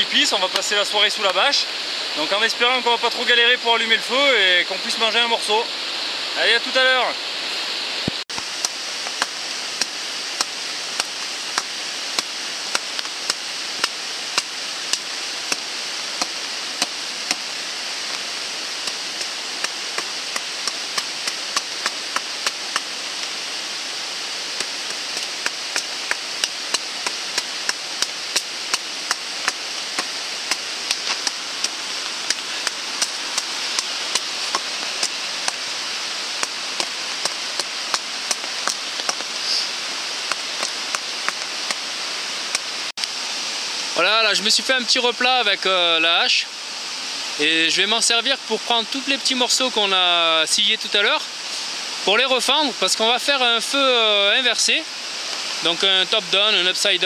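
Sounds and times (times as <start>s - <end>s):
heavy rain: 0.0s - 57.0s
sharp irregular taps: 18.8s - 22.9s, 24.6s - 35.6s, 36.4s - 39.3s.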